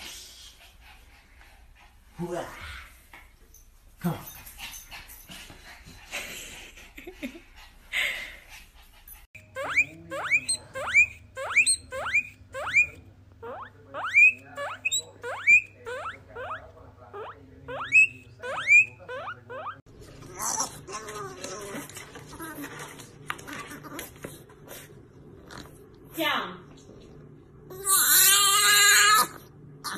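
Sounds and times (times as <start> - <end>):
guinea pig squealing: 9.4 - 21.8, 27.7 - 29.9.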